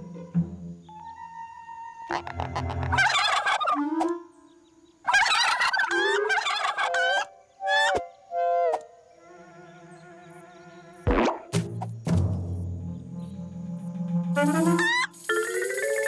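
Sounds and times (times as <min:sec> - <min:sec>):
cartoon bird gobbling squawks: 0:02.1 - 0:04.1, 0:05.1 - 0:08.0, 0:14.4 - 0:15.2.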